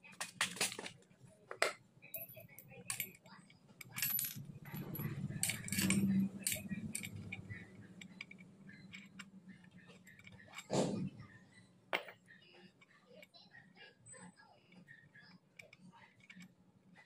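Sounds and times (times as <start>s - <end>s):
metal parts clinking and rattling: 0.0s - 10.7s
metal parts rubbing: 0.0s - 11.1s.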